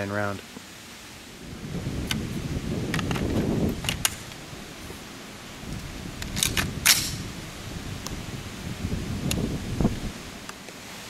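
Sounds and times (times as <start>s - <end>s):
rifle metallic clicks and clacks: 6.3s - 7.2s.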